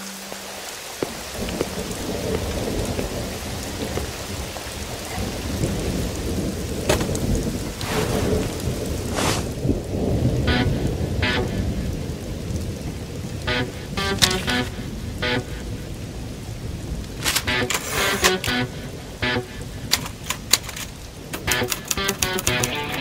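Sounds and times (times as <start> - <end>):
heavy rain: 0.0 - 23.0
low thunder rumble: 1.0 - 17.7.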